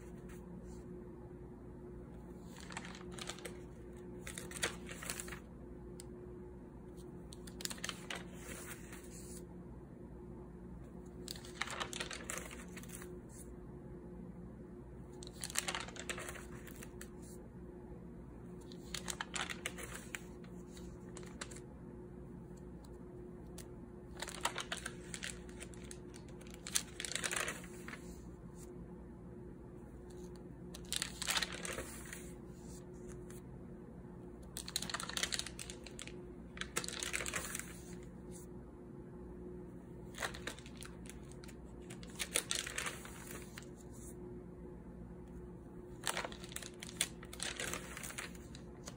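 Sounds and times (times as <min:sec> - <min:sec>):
notebook pages turning: 0:02.2 - 0:05.5, 0:07.0 - 0:09.5, 0:11.1 - 0:13.5, 0:15.1 - 0:17.4, 0:18.6 - 0:21.6, 0:23.5 - 0:28.7, 0:30.1 - 0:33.4, 0:34.5 - 0:38.4, 0:40.0 - 0:44.2, 0:45.9 - 0:48.9.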